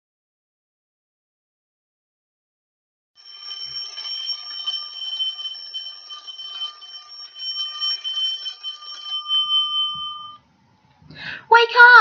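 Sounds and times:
bell alarm clock ringing: 0:03.2 - 0:10.5.

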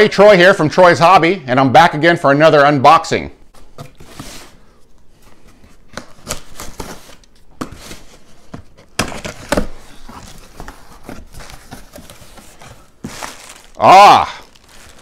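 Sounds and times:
cardboard flaps scraping: 0:03.6 - 0:13.8
cardboard rips and knocks: 0:05.9 - 0:15.0.

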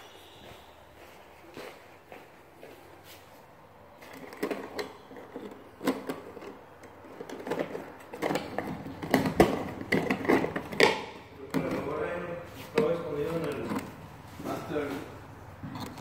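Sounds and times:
wires scraping and rustling: 0:11.5 - 0:16.0.

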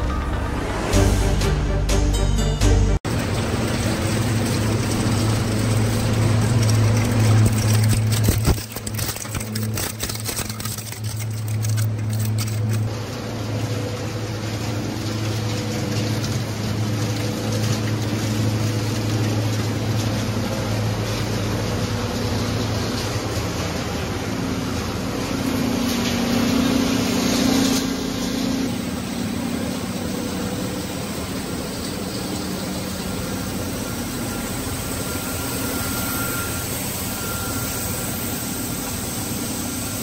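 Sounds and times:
intro music: 0:00.0 - 0:03.0
machinery hum: 0:00.0 - 0:40.0
shredder blades crunching: 0:03.2 - 0:12.9.

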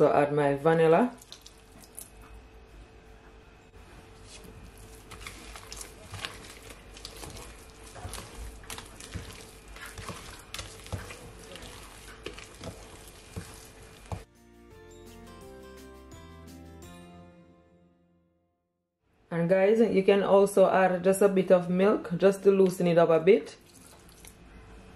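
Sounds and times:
spoon scraping glass bowl: 0:04.3 - 0:14.2
background music: 0:14.1 - 0:18.5.

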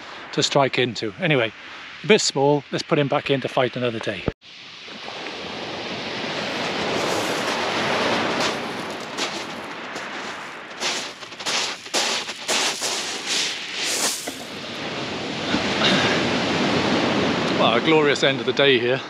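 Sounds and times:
waves washing on shingle: 0:05.0 - 0:18.2
footsteps crunching on shingle: 0:06.5 - 0:14.7.

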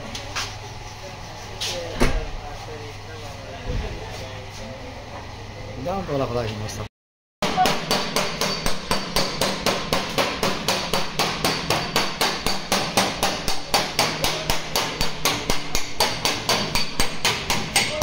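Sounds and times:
hammer striking steel bar: 0:07.4 - 0:18.0.

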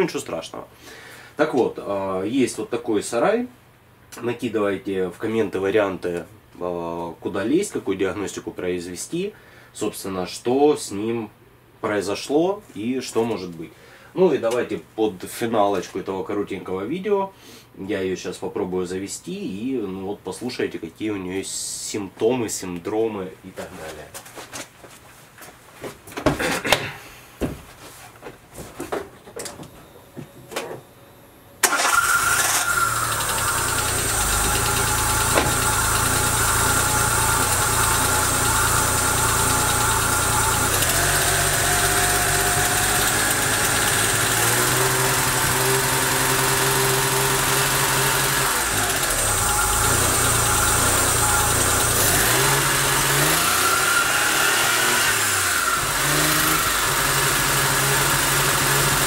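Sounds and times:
car engine idling unsteadily: 0:32.7 - 0:53.2.

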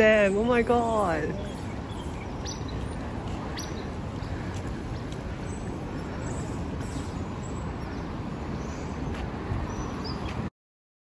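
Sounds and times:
road traffic rumble: 0:00.0 - 0:10.5.

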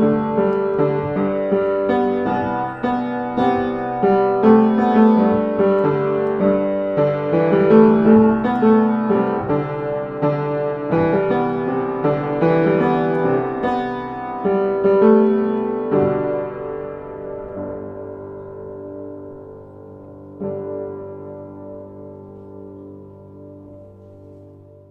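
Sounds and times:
piano music: 0:00.0 - 0:24.9.

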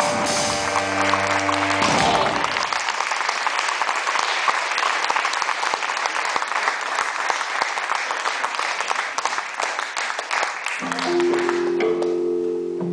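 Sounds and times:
audience applauding: 0:00.0 - 0:12.2
band final chord: 0:10.8 - 0:12.9.

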